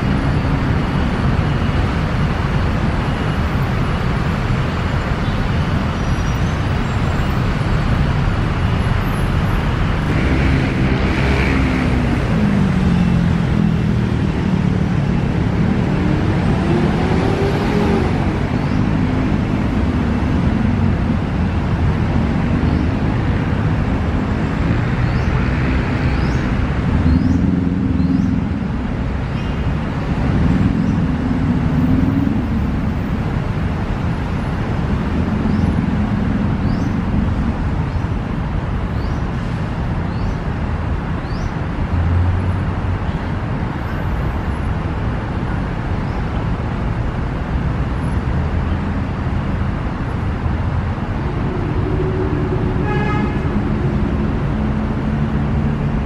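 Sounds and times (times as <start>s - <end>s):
road traffic rumble: 0.0s - 56.0s.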